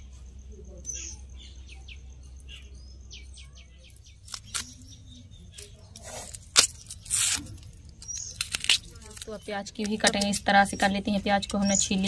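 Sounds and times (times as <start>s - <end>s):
birds chirping: 0.0s - 12.0s
crackly onion peeling scrapes: 4.0s - 12.0s.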